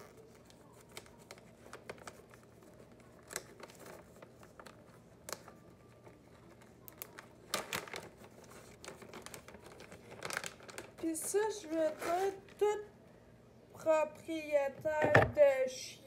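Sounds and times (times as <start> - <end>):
plastic bag crinkling: 0.0 - 12.8.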